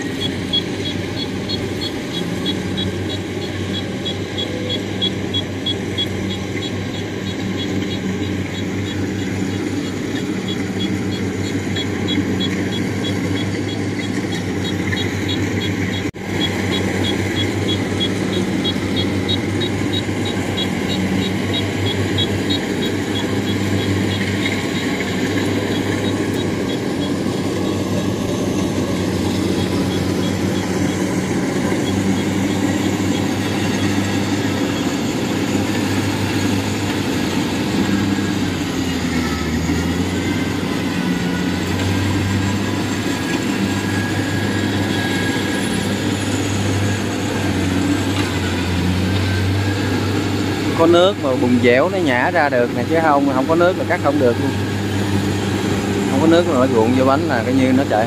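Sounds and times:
fast high ticking: 0.0s - 39.2s
combine harvester diesel engines: 0.0s - 58.0s.

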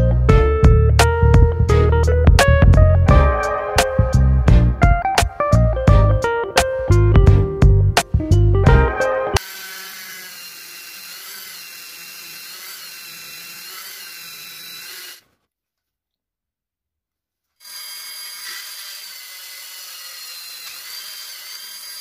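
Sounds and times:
rotary tool grinding wood: 9.4s - 15.4s, 17.6s - 22.0s.

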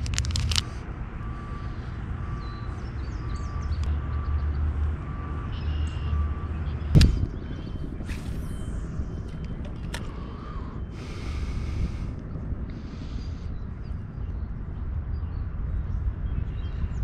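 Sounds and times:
low rumble: 0.0s - 17.0s
reversing alarm beeping: 0.6s - 12.0s.

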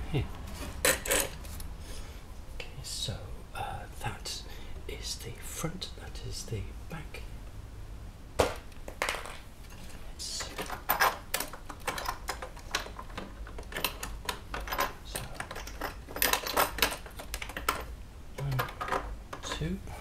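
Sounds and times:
hands fitting parts clicking: 8.4s - 19.7s.

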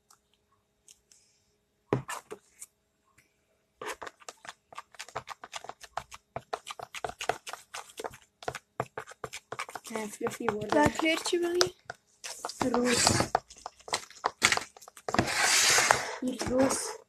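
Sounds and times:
slime squelching: 3.8s - 17.0s.

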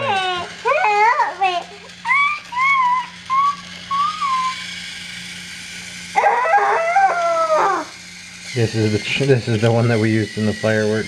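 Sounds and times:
toy motor whirring: 0.0s - 11.0s
high voice crying out: 6.2s - 7.9s.

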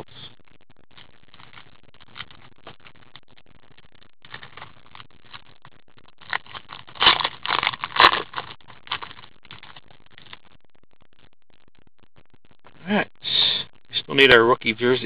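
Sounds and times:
packaging and cards crinkling: 0.9s - 10.5s.

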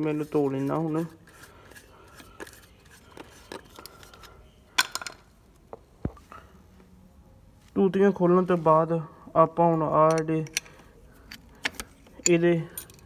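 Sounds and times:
metallic clicks and clinks: 10.1s - 13.0s.

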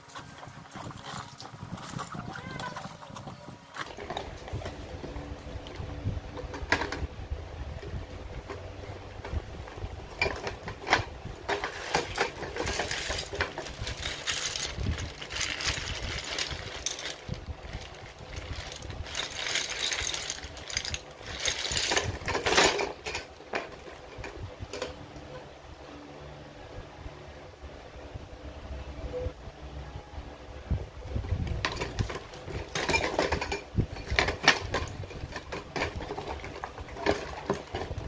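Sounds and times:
plastic bag crinkling: 11.6s - 23.0s.

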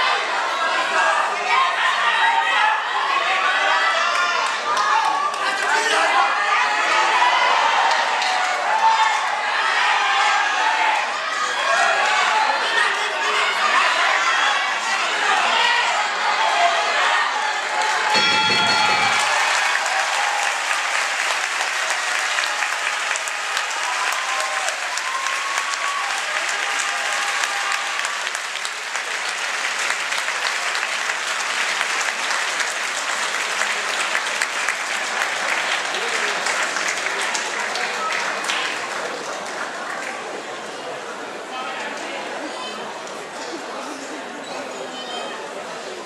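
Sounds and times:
spectators shouting: 0.0s - 28.4s
audience applauding: 3.7s - 12.9s, 17.6s - 40.9s.

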